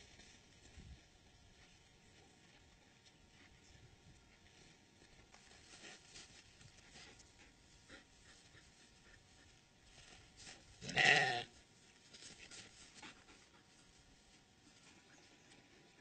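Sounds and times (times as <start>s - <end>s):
goat bleating: 10.8s - 11.5s.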